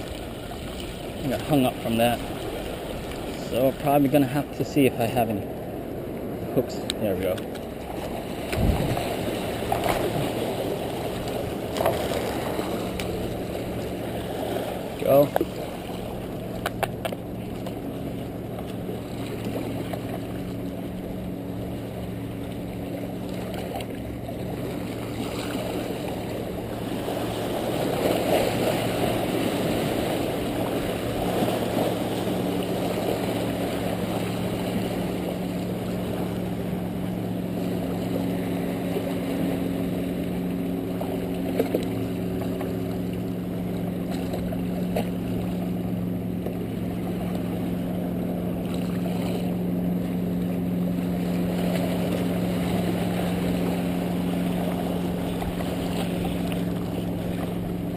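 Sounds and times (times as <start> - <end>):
motorboat engine droning: 0.0 - 57.9
waves washing against rocks: 7.0 - 17.6, 24.6 - 36.9.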